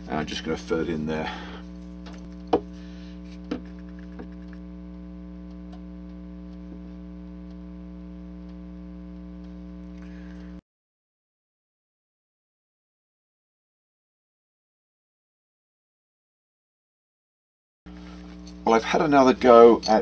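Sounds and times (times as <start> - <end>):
electrical mains hum: 0.0 - 10.6, 17.9 - 20.0.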